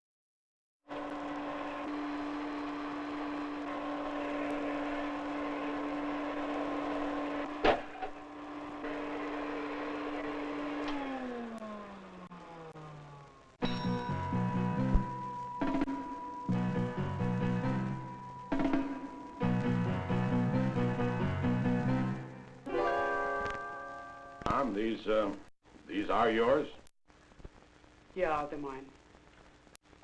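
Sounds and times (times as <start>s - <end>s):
vacuum cleaner motor humming: 0.9s - 13.4s.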